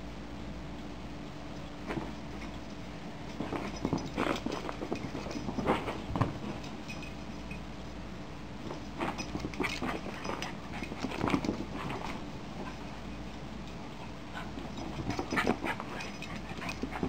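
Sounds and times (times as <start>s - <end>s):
puppy paws scuffling: 1.8s - 7.1s, 8.6s - 13.2s.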